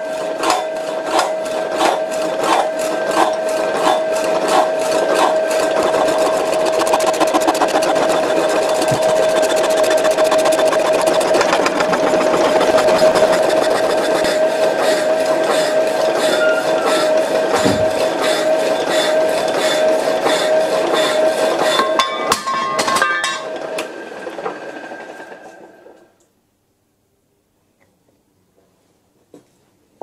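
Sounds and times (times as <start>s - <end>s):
steady drive whine: 5.3s - 14.8s.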